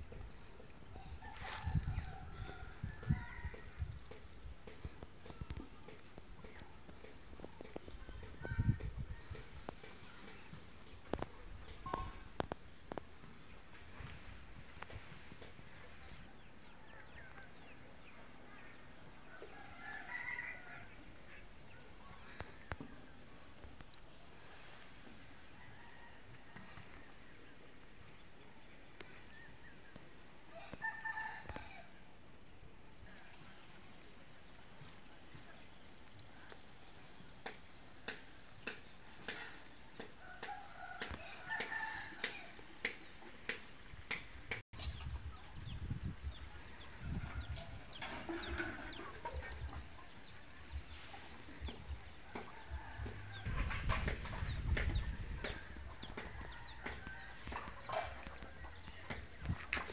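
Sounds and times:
faint outdoor background: 0.0 - 59.9
chickens clucking and chirping: 44.8 - 59.8.

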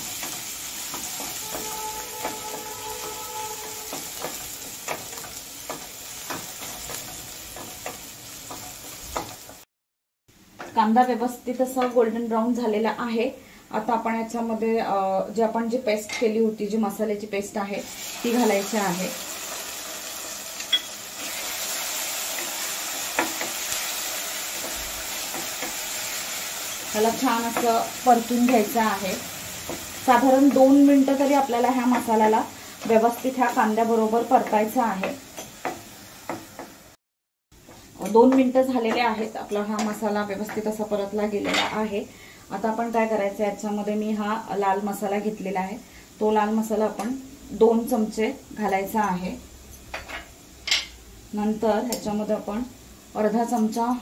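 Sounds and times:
onion sizzling in hot oil: 0.0 - 9.6, 16.6 - 37.0, 37.6 - 54.0
spatula scraping a metal pan: 0.8 - 7.0.

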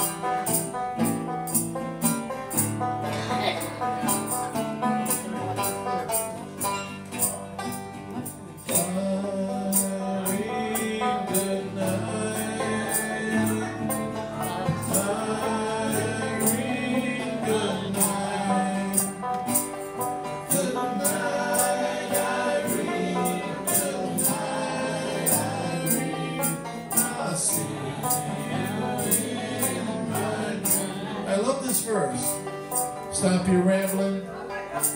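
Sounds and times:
acoustic guitar: 0.0 - 34.9
banjo: 0.0 - 34.9
man singing: 8.6 - 19.7, 20.4 - 32.5, 33.1 - 34.3
steady percussion beat: 19.0 - 24.6.

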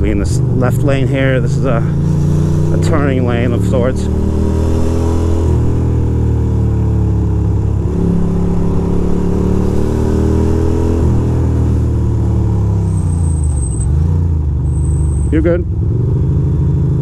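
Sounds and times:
motorcycle engine running: 0.0 - 13.2.

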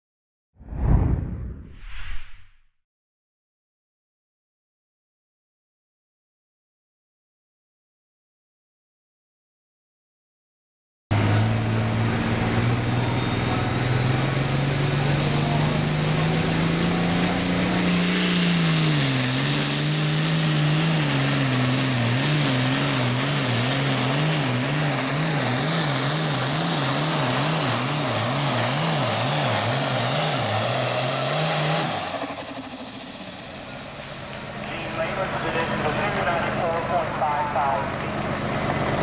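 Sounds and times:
diesel tractor engine at full throttle: 11.1 - 39.0.

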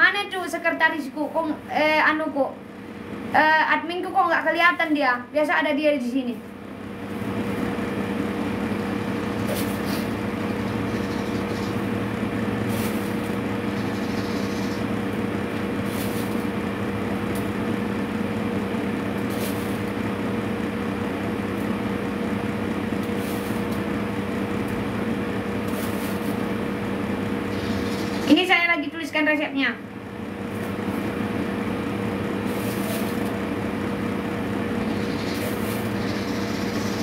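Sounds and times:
electric motor humming: 6.8 - 28.8, 29.8 - 37.0.

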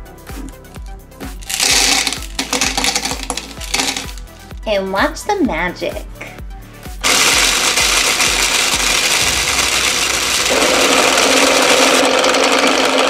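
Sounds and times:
toy blender motor whirring: 1.4 - 4.2, 7.0 - 13.0
jelly beans rattling in plastic jar: 1.4 - 4.6, 7.0 - 12.0.

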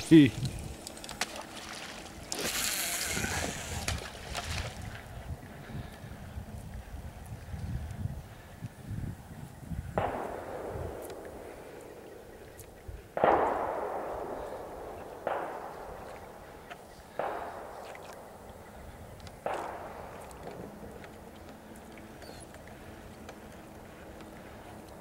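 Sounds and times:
sharp bangs with echo: 10.0 - 21.4.

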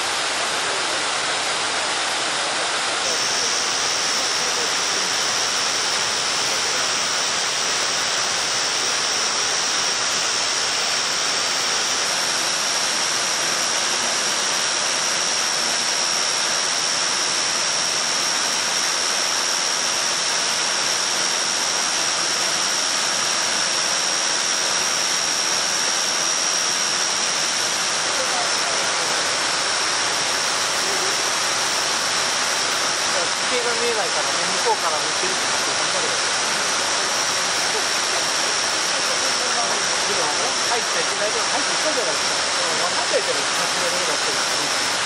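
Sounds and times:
steady high-pitched tone: 0.0 - 45.0
waterfall rushing: 28.0 - 45.0.

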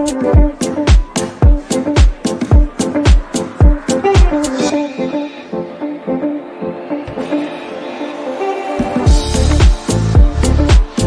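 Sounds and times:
heavy bass drum beat: 0.0 - 4.7, 9.1 - 11.0
plucked electronic melody: 0.0 - 11.0.

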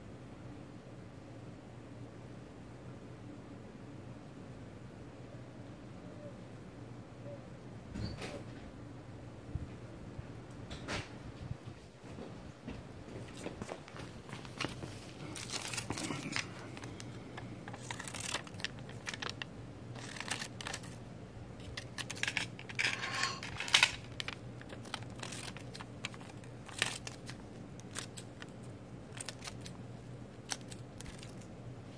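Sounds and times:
plastic crinkling: 13.2 - 21.0, 21.6 - 31.9.

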